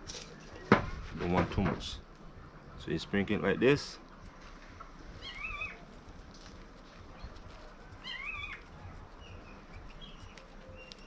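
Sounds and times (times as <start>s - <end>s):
wavering animal calls: 5.1s - 6.0s, 7.0s - 11.0s.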